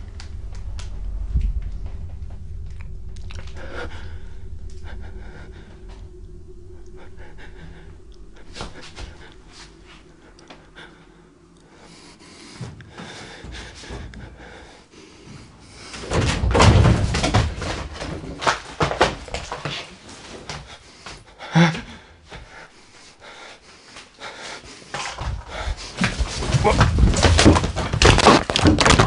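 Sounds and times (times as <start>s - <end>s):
bedding and clothing rustling: 7.0s - 29.0s
heavy knocking and thumping: 12.5s - 19.8s, 25.0s - 29.0s.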